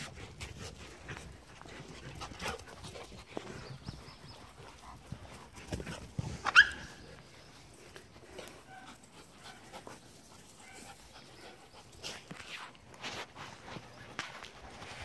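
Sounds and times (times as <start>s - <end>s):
dogs scuffling on grass: 0.0s - 15.0s
dog yelp: 6.4s - 7.0s.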